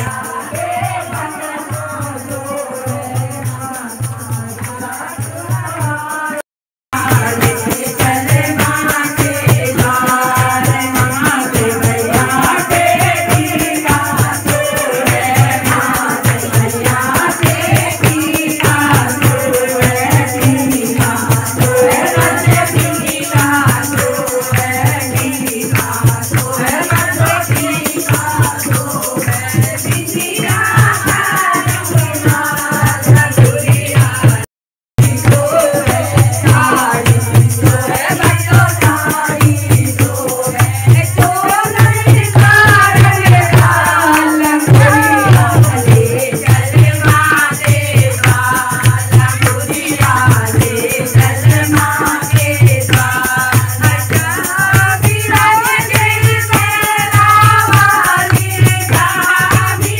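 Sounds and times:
rattling percussion: 0.0 - 6.4, 7.0 - 59.9
women singing devotional song: 0.0 - 6.4, 7.0 - 59.9
hand drum beat: 0.0 - 59.9
handclaps: 42.4 - 50.3, 51.2 - 59.6.

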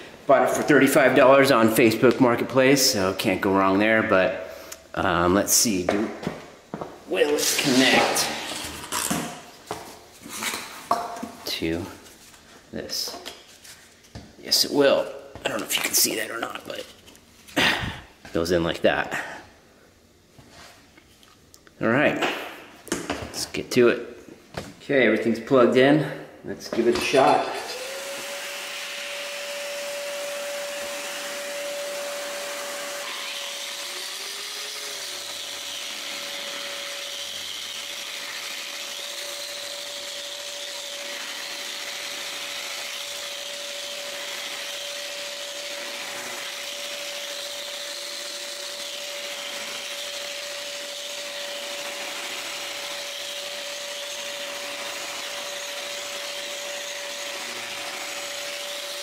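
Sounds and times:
angle grinder grinding concrete: 7.1 - 9.2, 26.8 - 59.0.

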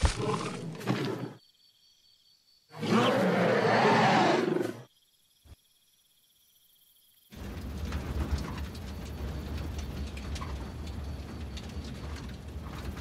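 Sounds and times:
dinosaur roar: 2.7 - 4.9.

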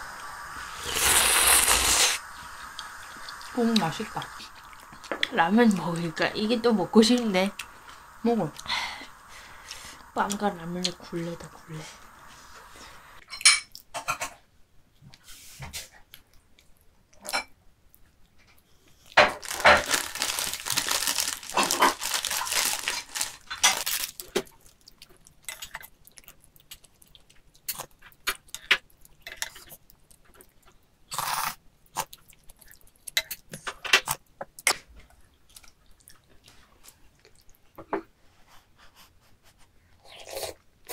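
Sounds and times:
paper bag rustling and crinkling: 19.2 - 24.6
chewing: 19.9 - 37.8.

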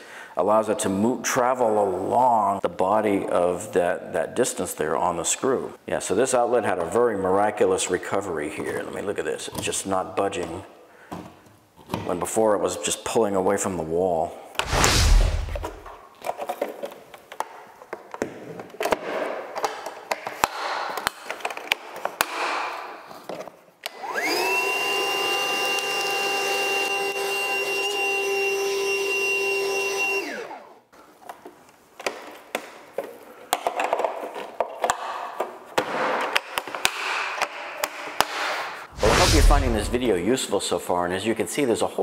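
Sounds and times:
vacuum cleaner whining: 24.0 - 30.6
clicks and knocks of handling: 31.2 - 38.3.

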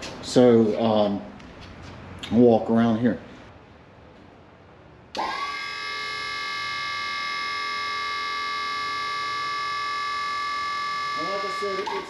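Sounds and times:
hydraulic pump motor whining: 5.1 - 12.0.

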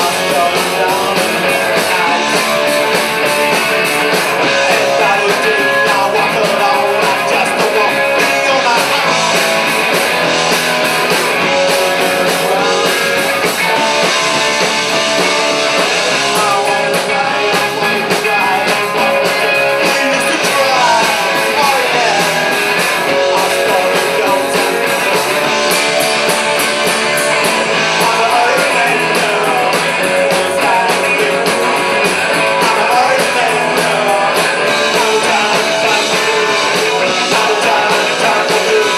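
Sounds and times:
rock band playing: 0.0 - 38.9.

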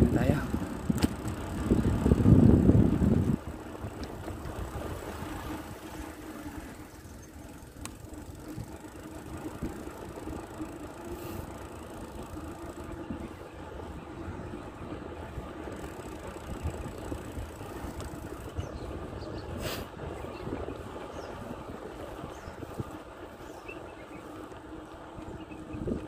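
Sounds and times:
wind rushing over microphone: 0.0 - 6.9, 16.5 - 24.1
bicycle riding noise: 0.0 - 26.0.

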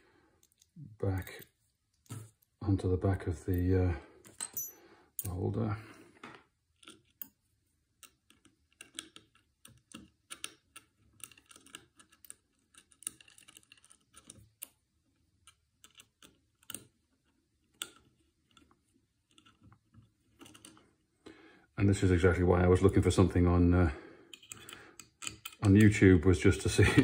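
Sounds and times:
small metallic clicks and taps: 6.2 - 14.8, 15.4 - 20.8, 24.3 - 26.0.

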